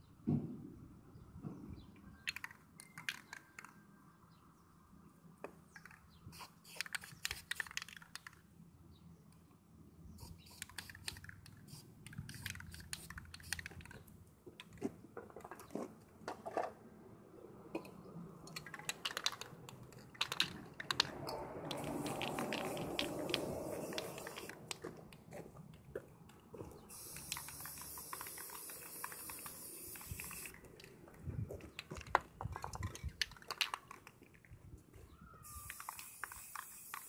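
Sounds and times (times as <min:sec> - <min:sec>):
aerosol spray can hissing: 0:06.4 - 0:07.8, 0:10.2 - 0:13.7, 0:21.7 - 0:24.6, 0:26.9 - 0:30.6, 0:35.4 - 0:37.0.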